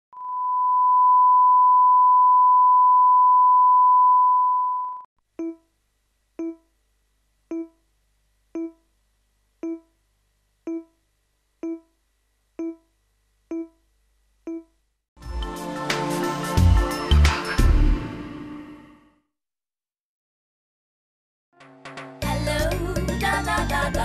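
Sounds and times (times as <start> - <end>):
short pitched beeps: 0.2 - 5.6
steady test tone: 7.4 - 7.9, 8.5 - 8.9, 9.6 - 10.0, 10.6 - 11.0.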